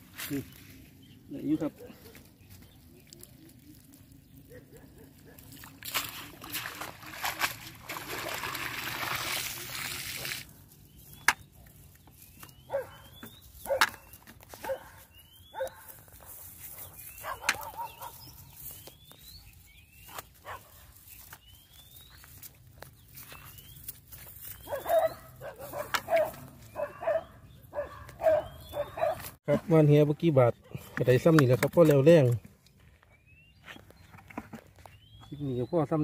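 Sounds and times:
water splashing off net: 0:05.6 - 0:10.4
bird chirping: 0:10.8 - 0:29.3, 0:32.1 - 0:36.0
dog yipping: 0:12.7 - 0:13.1, 0:24.6 - 0:29.3.

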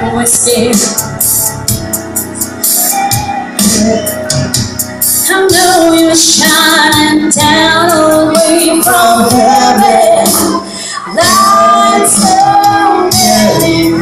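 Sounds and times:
backing music with light beat: 0:00.0 - 0:14.0
woman singing a slow ballad: 0:05.2 - 0:14.0.

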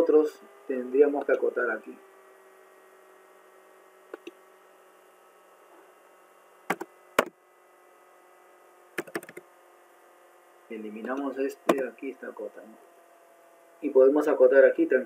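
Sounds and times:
faint steady hum: 0:00.0 - 0:15.0
computer mouse clicks: 0:04.1 - 0:04.4, 0:09.0 - 0:09.4
keyboard key taps: 0:06.7 - 0:07.3, 0:09.0 - 0:09.4.

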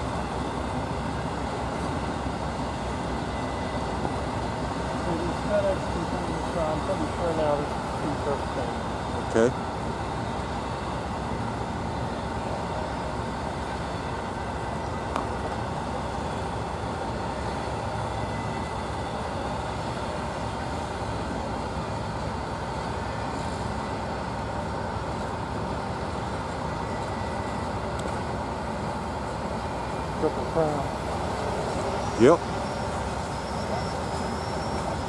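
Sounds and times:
engine running: 0:00.0 - 0:35.0
faint constant whine: 0:00.0 - 0:35.0.

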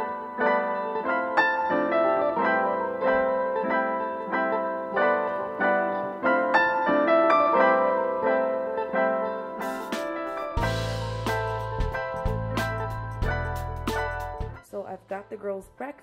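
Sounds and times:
piano music: 0:00.0 - 0:14.7.

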